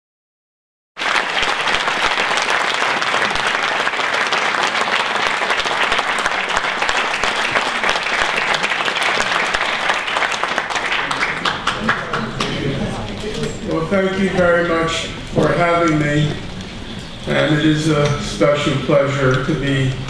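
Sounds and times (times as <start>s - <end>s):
audience applauding: 1.0s - 13.0s.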